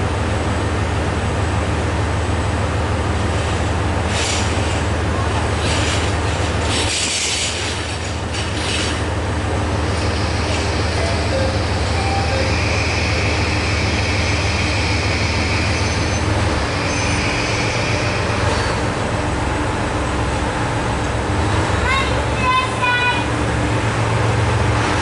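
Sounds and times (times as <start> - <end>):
diesel railcar engine humming: 0.0 - 25.0
high whine: 9.8 - 20.1.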